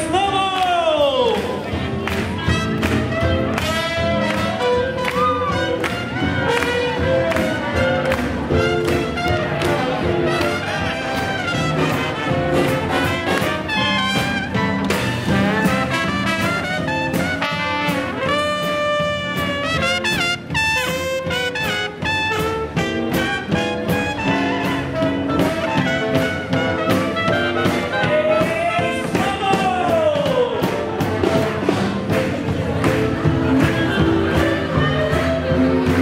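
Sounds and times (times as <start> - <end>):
double bass: 0.0 - 36.0
drums keeping a steady beat: 0.0 - 36.0
trumpet: 1.8 - 36.0
trombone: 2.3 - 29.6
clarinet: 2.4 - 29.0, 33.2 - 36.0.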